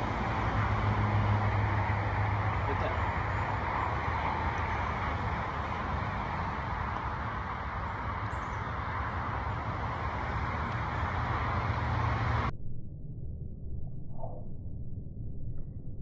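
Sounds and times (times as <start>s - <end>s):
outdoor rumble and hiss: 0.0s - 12.5s.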